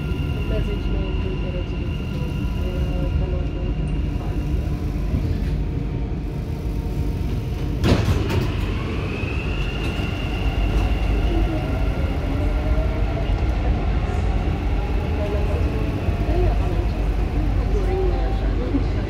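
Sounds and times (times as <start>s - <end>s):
train rumble: 0.0s - 19.0s
train clunk: 7.3s - 8.9s.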